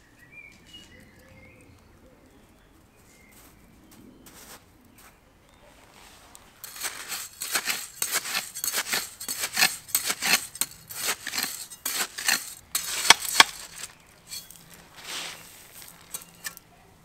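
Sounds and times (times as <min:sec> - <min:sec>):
hand tool scraping gravel: 0:05.9 - 0:16.7.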